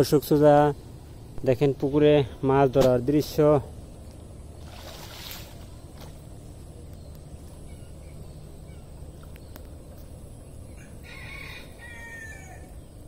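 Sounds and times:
low background noise: 0:00.0 - 0:13.0
rooster crowing: 0:10.7 - 0:12.8.

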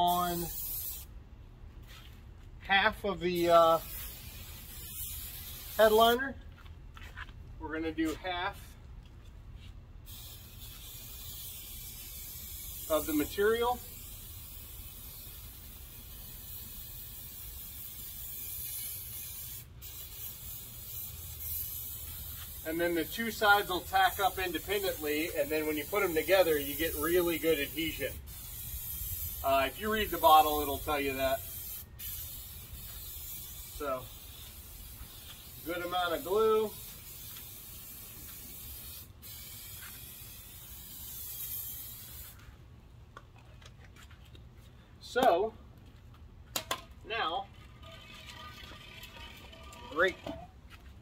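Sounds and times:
aerosol spray hissing: 0:00.1 - 0:01.1, 0:03.7 - 0:06.0, 0:10.1 - 0:42.4.

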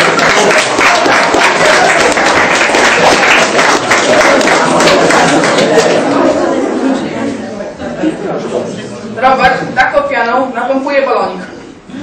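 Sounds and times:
audience clapping: 0:00.0 - 0:06.3
chatter: 0:00.0 - 0:12.0.

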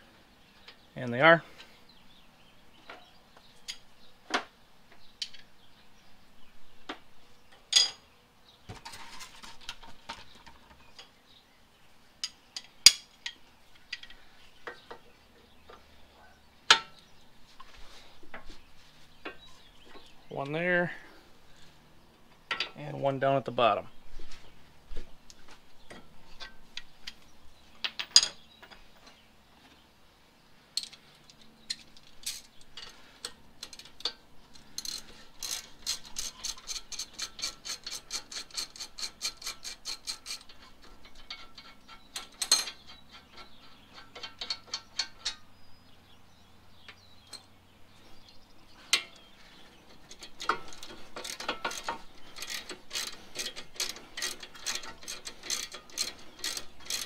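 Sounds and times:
tool clacking on bolts: 0:31.7 - 0:45.5, 0:49.9 - 0:57.0
hand ratchet clicking: 0:34.8 - 0:40.6, 0:50.0 - 0:57.0.

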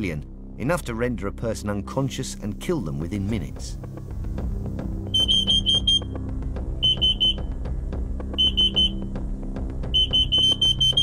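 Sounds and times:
alarm high-pitched beeps: 0:05.2 - 0:06.1, 0:06.8 - 0:07.4, 0:08.4 - 0:09.0, 0:10.0 - 0:11.0.

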